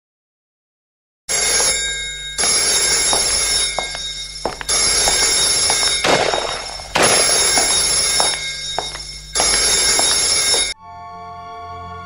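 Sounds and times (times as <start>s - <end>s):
telephone ringing: 1.3s - 10.8s.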